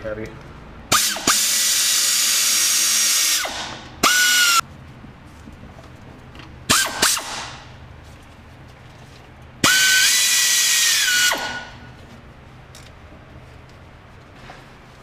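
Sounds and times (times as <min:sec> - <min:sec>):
power ratchet whining: 0:00.9 - 0:04.6, 0:09.6 - 0:11.9.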